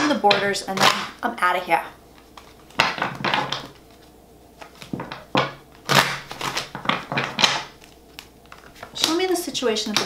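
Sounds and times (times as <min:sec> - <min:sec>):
cards shuffling: 0:02.1 - 0:10.0.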